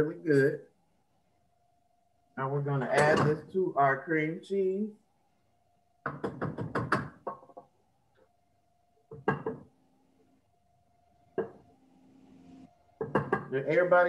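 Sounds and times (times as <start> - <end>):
spatula knocking on glass bowl: 9.1 - 9.6, 13.0 - 13.5.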